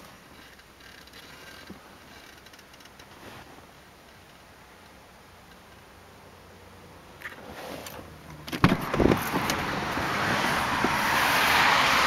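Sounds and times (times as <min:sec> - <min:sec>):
rush of outside noise: 0:00.0 - 0:12.0
car door thumps: 0:08.5 - 0:09.6.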